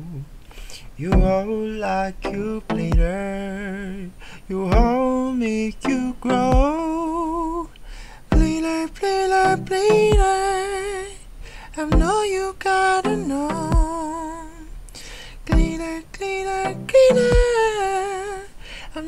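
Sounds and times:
person singing wordless melody: 0:00.0 - 0:19.0
looping beat low thump: 0:01.1 - 0:01.5, 0:02.2 - 0:03.3, 0:04.7 - 0:05.1, 0:05.8 - 0:06.9, 0:08.3 - 0:08.7, 0:09.5 - 0:10.5, 0:11.9 - 0:12.2, 0:13.0 - 0:14.0, 0:15.5 - 0:15.9, 0:16.6 - 0:17.7.

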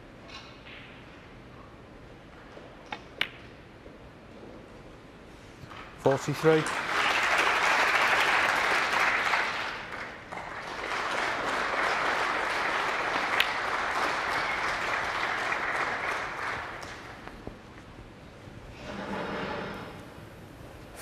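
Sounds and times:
audience applauding: 0:06.1 - 0:17.3.

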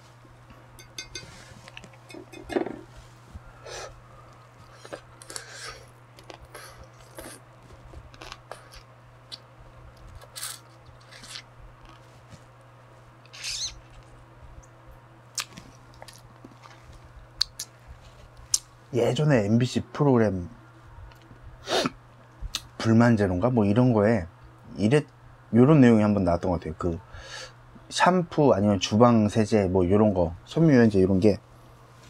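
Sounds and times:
wet chewing and sucking: 0:04.6 - 0:12.0.

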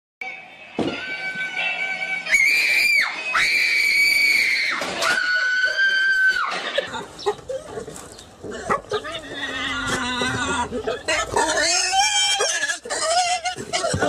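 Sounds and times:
girl screaming: 0:02.3 - 0:06.5.

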